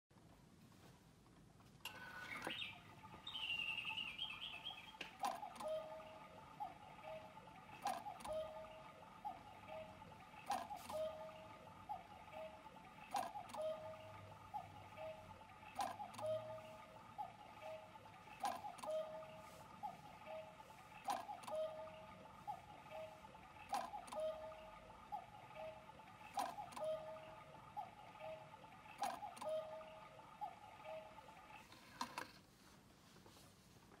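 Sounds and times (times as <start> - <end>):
cuckoo clock click: 1.9 - 17.0, 18.4 - 19.4, 20.2 - 22.0, 22.9 - 31.2
cuckoo clock tones: 1.9 - 32.4.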